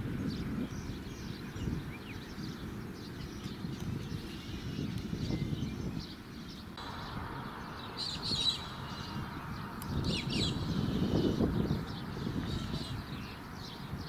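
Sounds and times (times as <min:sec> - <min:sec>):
birds chirping: 0:00.0 - 0:14.0.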